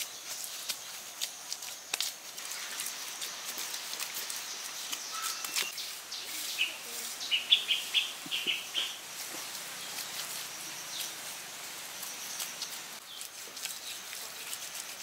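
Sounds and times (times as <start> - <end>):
high-pitched outdoor hiss: 0.0 - 15.0
bird calling short sharp notes: 5.1 - 5.8.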